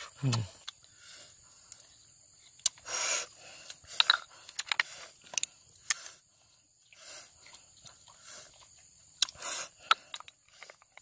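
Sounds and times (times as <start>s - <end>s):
snail shells clicking and tapping: 2.4s - 2.9s, 3.6s - 6.2s, 8.6s - 11.0s.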